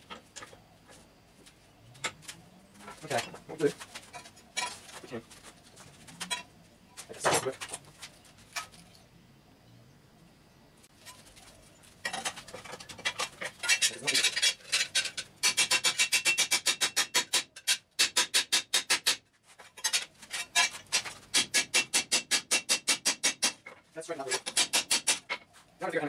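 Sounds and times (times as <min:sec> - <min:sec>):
hand tool working steel plate: 0:12.0 - 0:25.6.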